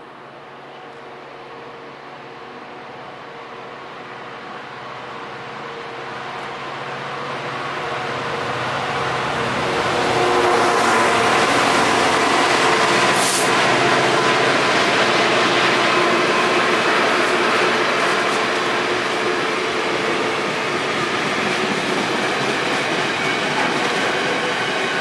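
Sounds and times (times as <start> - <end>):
diesel locomotive engine: 0.0 - 25.0
sharp hiss: 13.2 - 13.6.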